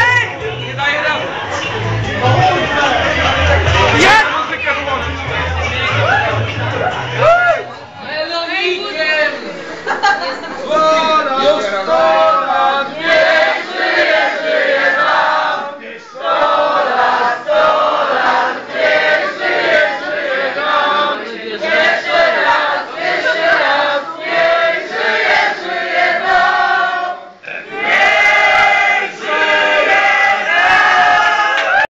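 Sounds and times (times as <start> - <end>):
group singing together: 1.1 - 4.3, 9.6 - 31.1.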